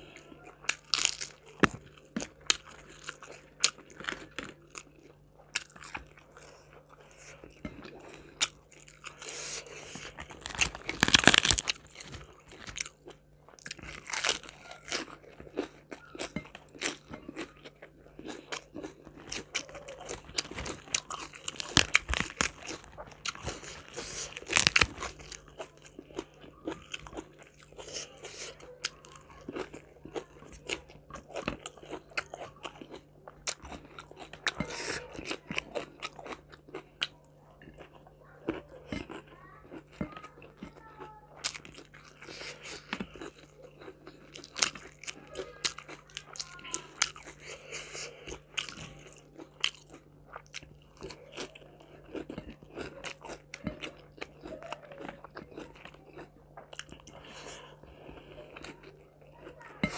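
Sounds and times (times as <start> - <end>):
crunchy bites of fried chicken: 0.6 - 4.9, 8.4 - 37.9
wet chewing: 0.6 - 59.9.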